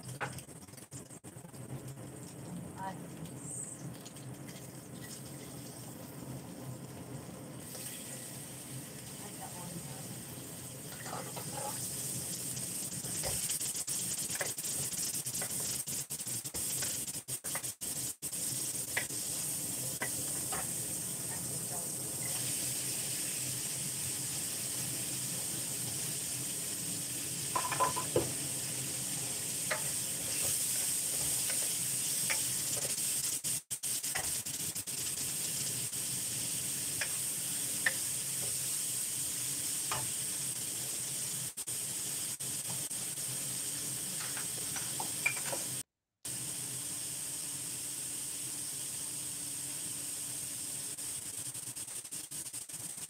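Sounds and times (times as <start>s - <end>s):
vegetables sizzling in a wok: 1.3s - 53.0s
wooden spatula scraping metal: 10.9s - 11.9s.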